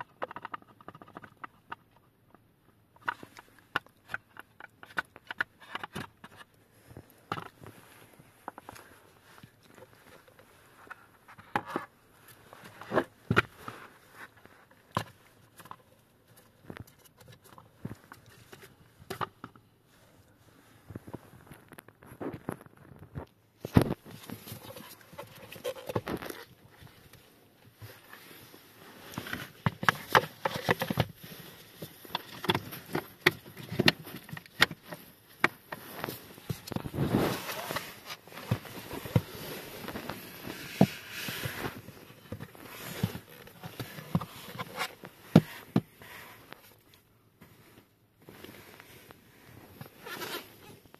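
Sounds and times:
rustling: 2.9s - 50.9s
plastic parts knocking on rubber mat: 32.1s - 45.9s.

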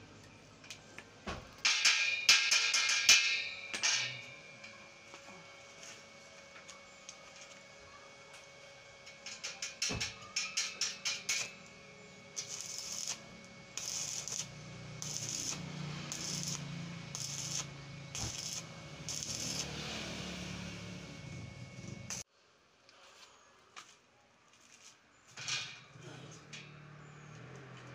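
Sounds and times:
welder low hum: 0.0s - 22.3s
welding arc crackling: 9.0s - 22.2s.

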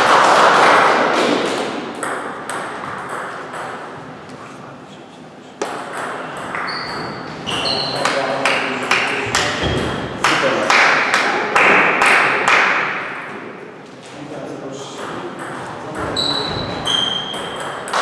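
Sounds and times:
shoe squeaks on wooden floor: 6.6s - 8.2s, 16.1s - 17.4s.

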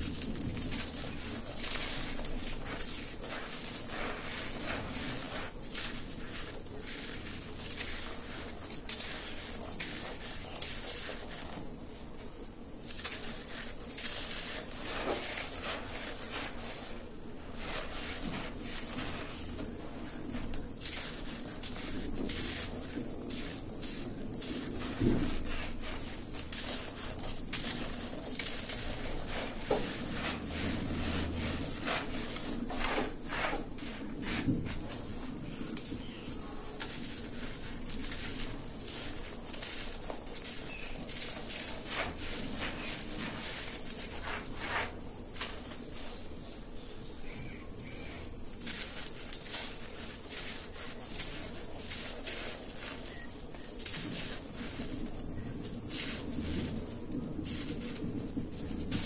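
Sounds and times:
dirt crumbling in hands: 0.0s - 46.3s
hands scraping through dirt: 0.0s - 59.0s
soil pattering down: 0.0s - 59.0s.

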